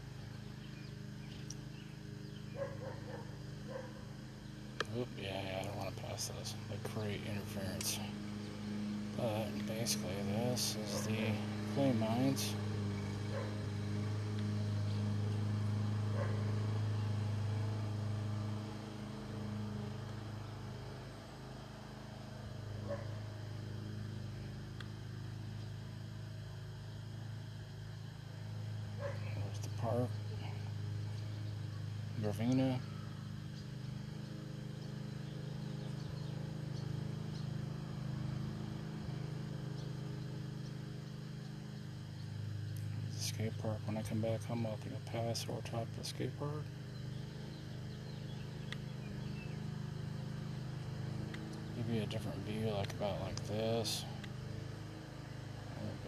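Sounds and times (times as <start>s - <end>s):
drone motors humming: 0.0s - 56.0s.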